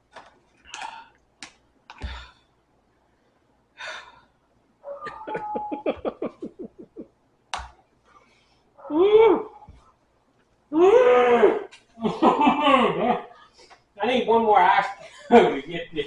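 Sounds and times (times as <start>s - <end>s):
man panting and gasping: 2.0s - 2.5s.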